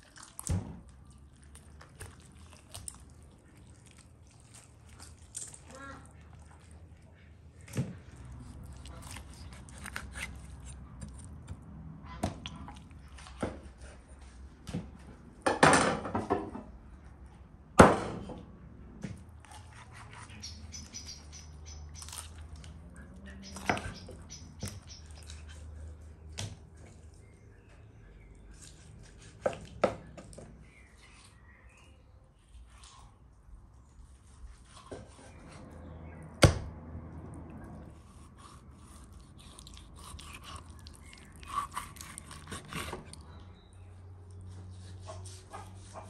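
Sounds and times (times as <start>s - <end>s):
crunch of joints being cut: 8.0s - 11.6s, 38.0s - 43.4s.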